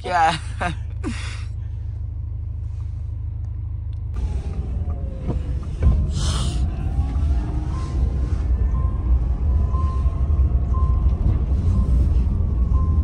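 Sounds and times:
faint gliding tones: 4.2 - 13.0.

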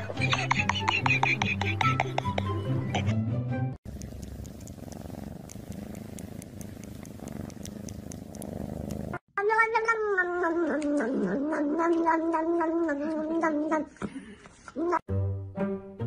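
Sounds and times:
cat purring: 3.9 - 9.2.

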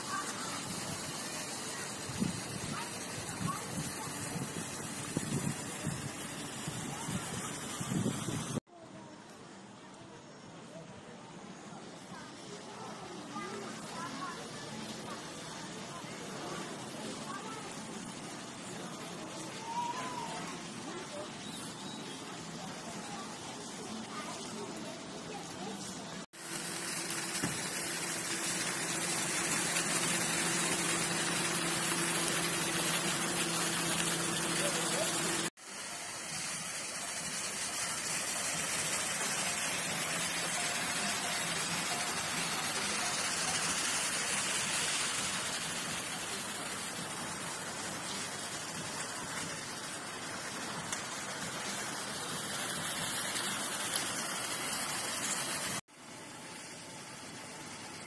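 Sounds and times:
fountain water splashing: 0.0 - 58.0.

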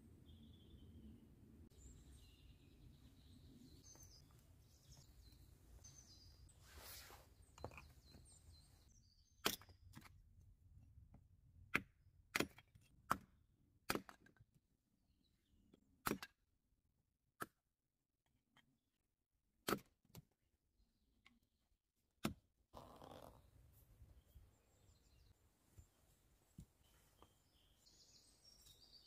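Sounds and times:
faint bird chirps: 0.0 - 9.5, 22.8 - 29.0
hatchet chopping wood: 11.7 - 13.3, 16.0 - 16.4.

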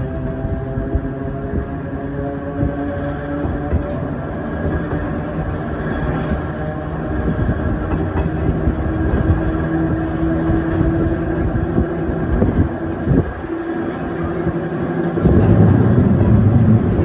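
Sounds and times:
wheels rumbling on rail: 0.0 - 17.0.

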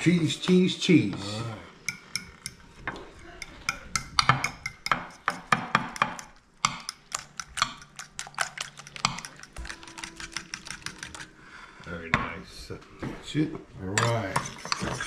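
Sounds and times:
fork whisking eggs in glass dish: 1.8 - 11.4, 14.0 - 15.0.

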